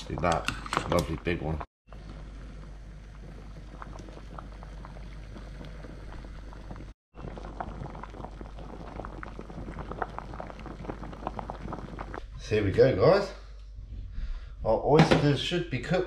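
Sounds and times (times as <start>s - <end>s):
water boiling with pops: 0.0s - 12.6s.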